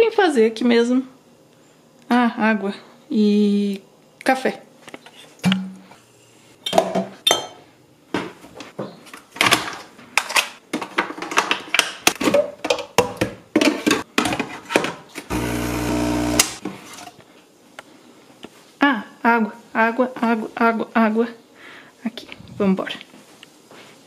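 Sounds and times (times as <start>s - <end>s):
coffee machine pump buzzing: 15.3s - 16.6s.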